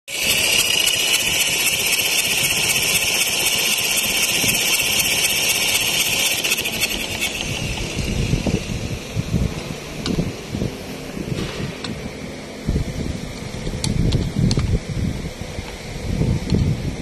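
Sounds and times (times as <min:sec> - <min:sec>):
diesel engine idling: 0:00.1 - 0:11.3.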